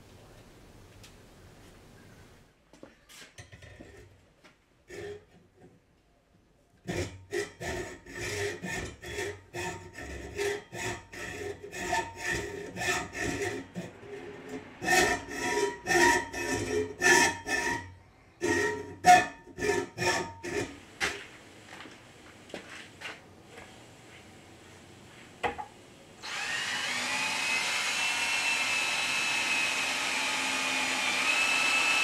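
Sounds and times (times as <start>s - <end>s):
hacksaw cutting metal: 6.8s - 20.8s, 26.2s - 32.0s.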